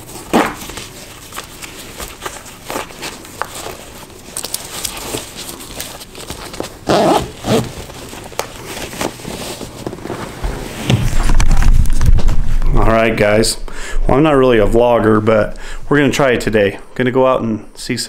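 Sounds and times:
bootlaces rustling and clicking: 0.3 - 10.1
bootlaces pulled tight: 6.8 - 7.8.

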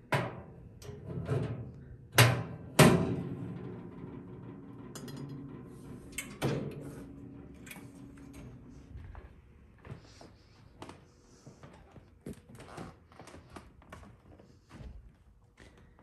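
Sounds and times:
sliding metal doors clanking: 0.3 - 8.9.

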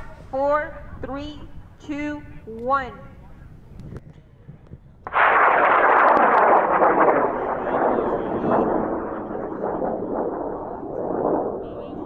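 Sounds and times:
rocket motor roar: 5.1 - 12.0.

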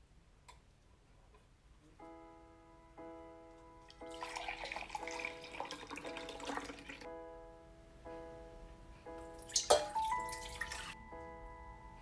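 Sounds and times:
background music: 2.0 - 12.0
milk pouring into a jug: 4.1 - 7.0
milk pouring into a metal pot: 4.1 - 7.0.

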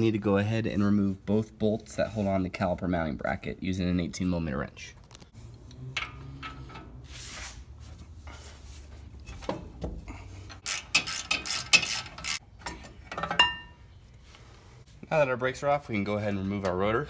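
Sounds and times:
ratcheting wrench clicking: 10.6 - 12.4.

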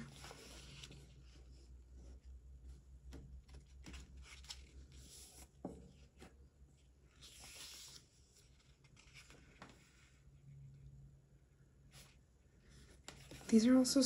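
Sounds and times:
paper pages flipping and rustling: 0.0 - 1.4, 3.1 - 6.4, 7.0 - 10.2, 12.8 - 13.6.

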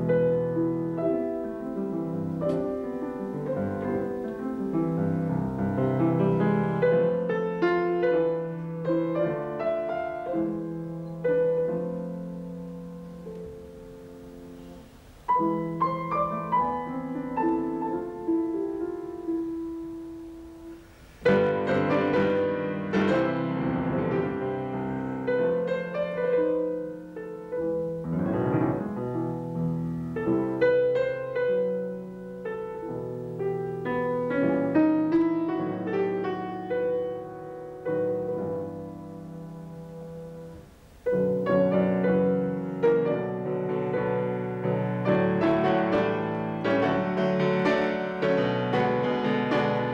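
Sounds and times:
solo grand piano playing: 0.0 - 49.9.

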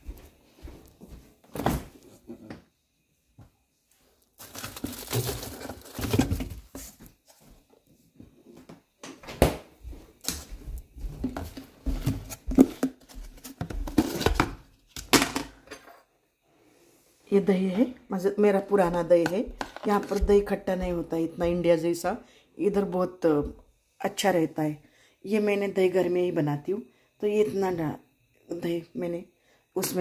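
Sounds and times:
containers rustling and knocking: 4.4 - 7.1, 11.0 - 15.9, 18.8 - 21.1
sharp knocks and clicks on counter: 19.2 - 20.4.

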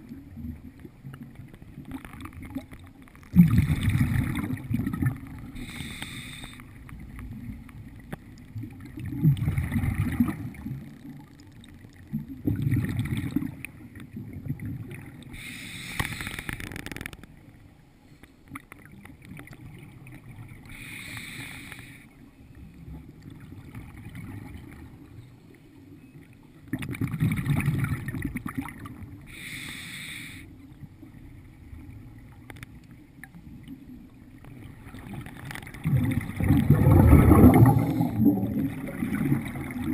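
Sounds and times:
exhale bubbling rumble: 3.3 - 6.3, 7.0 - 10.9, 34.7 - 39.9
regulator inhale hissing: 5.6 - 6.8, 15.3 - 16.7, 20.7 - 22.1, 29.3 - 30.5.

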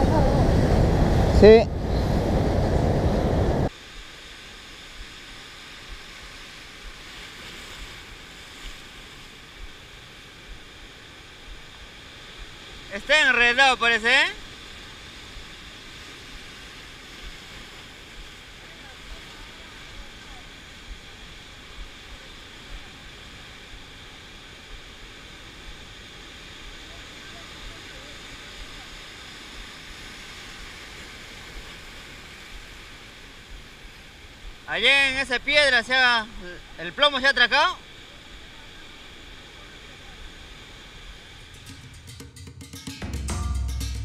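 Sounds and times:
wind bumps on microphone: 0.0 - 3.7
rush of wind: 0.0 - 34.7
surf breaking over rocks: 0.0 - 42.2.

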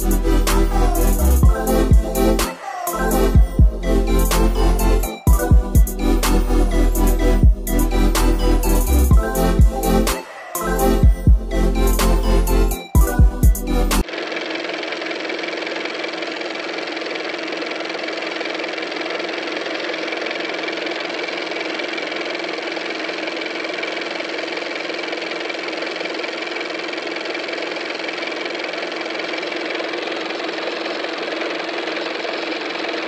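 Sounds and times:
film projector whirring and clattering: 13.9 - 33.0.

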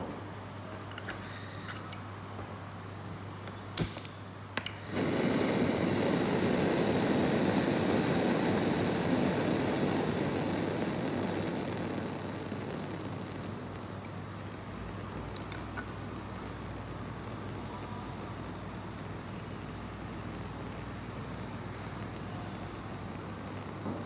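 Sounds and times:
burner igniter clicks: 3.4 - 16.6
gas flame rushing: 3.7 - 17.4.

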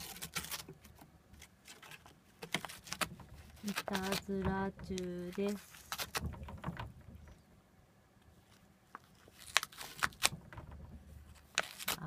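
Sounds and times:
cat tearing paper: 0.0 - 4.4, 5.0 - 6.4, 9.1 - 10.4, 11.3 - 12.0.

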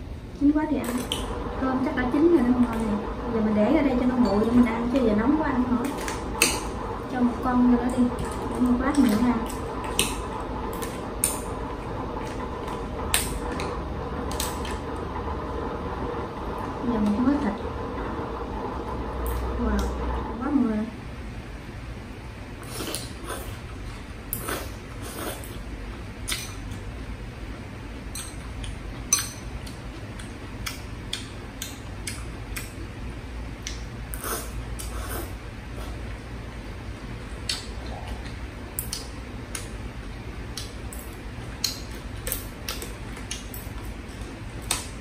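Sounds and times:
steady low hum: 0.0 - 45.0.

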